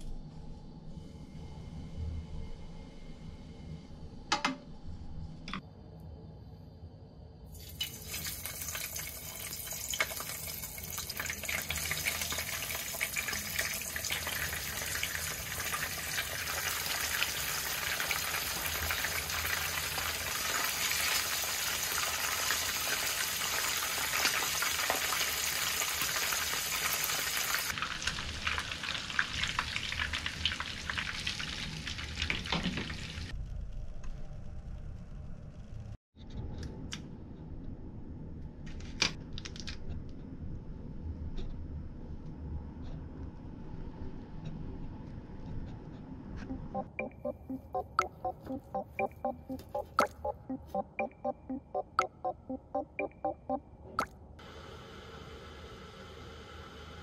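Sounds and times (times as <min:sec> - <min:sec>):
fish deep-frying in oil: 0:07.6 - 0:33.3.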